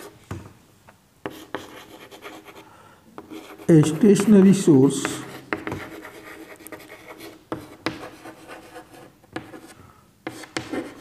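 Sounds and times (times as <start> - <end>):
chalk scratching on blackboard: 1.2 - 2.6, 3.2 - 4.3, 5.2 - 11.0
chalk tapping on board: 5.0 - 11.0.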